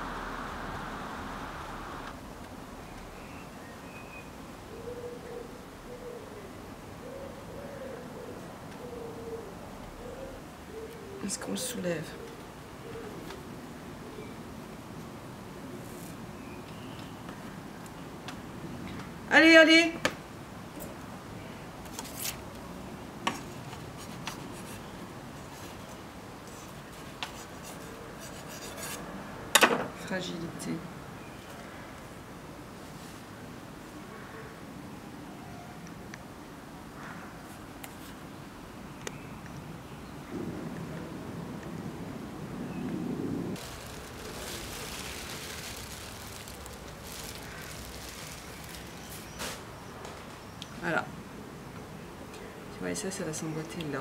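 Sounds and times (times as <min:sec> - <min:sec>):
plastic sheeting crinkling: 0:43.6 - 0:49.7.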